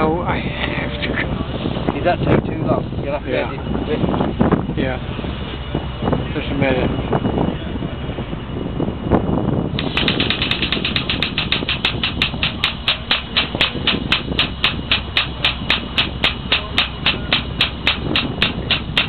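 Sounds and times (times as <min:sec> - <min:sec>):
diaphragm pump clicking: 0:09.8 - 0:19.0.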